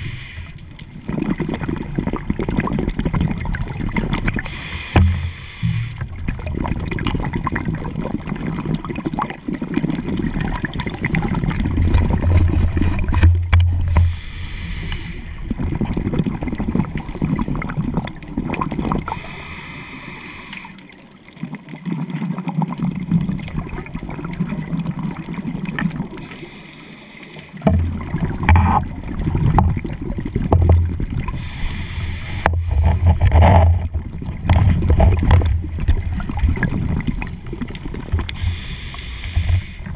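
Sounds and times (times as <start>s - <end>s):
regulator hissing inhale: 0.0s - 0.6s, 4.4s - 6.0s, 13.9s - 15.5s, 19.1s - 20.9s, 26.2s - 27.6s, 31.3s - 33.1s, 38.3s - 39.9s
exhaled bubbles underwater: 0.0s - 39.9s.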